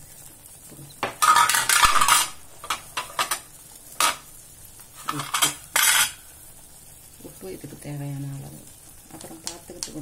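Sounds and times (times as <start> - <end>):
steel utensils clinking and scraping: 1.2 - 4.2, 5.0 - 6.2.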